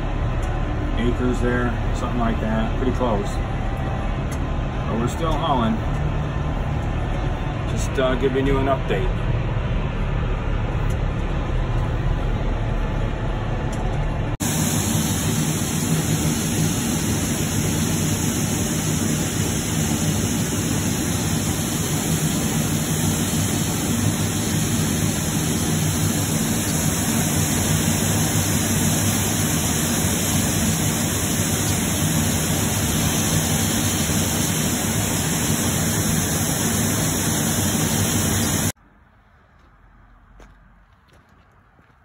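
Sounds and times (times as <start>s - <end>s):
grain augers running: 14.4s - 38.7s.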